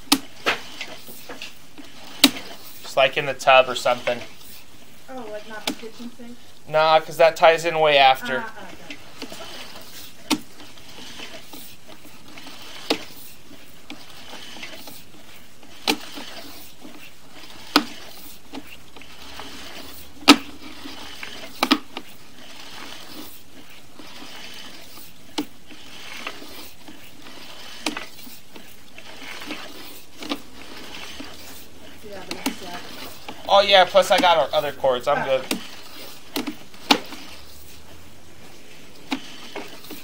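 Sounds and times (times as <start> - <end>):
cable knocking and clacking: 0.0 - 4.4, 8.8 - 37.8
steady low hiss: 0.0 - 11.0, 26.5 - 40.0.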